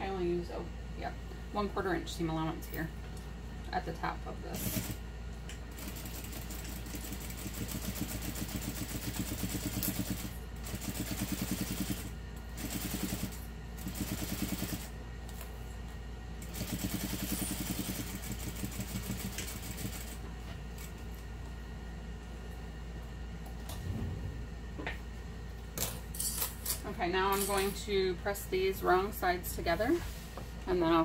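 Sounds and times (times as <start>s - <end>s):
sewing machine low hum: 4.4s - 25.7s.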